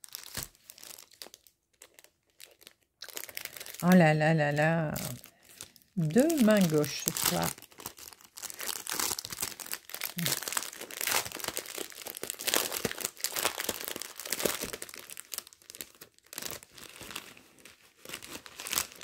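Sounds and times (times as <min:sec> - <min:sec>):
plastic bags crinkling: 0:00.0 - 0:19.0.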